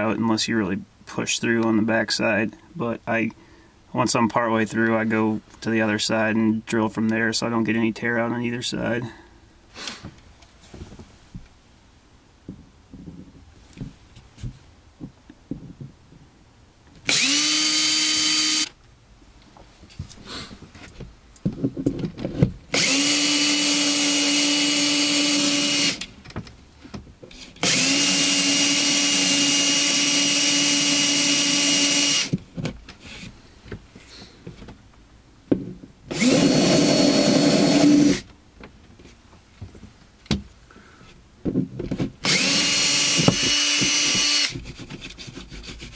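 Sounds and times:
cordless drill whining: 17.0 - 18.8, 22.7 - 26.1, 27.6 - 32.4, 36.1 - 38.3, 42.2 - 44.6.

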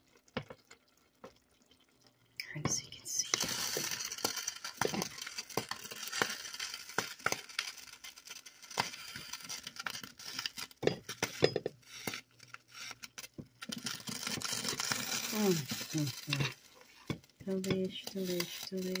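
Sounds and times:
pot simmering with soft pops: 0.0 - 19.0
spoon stirring and knocking in pot: 2.6 - 7.4, 8.8 - 12.2, 13.4 - 19.0.

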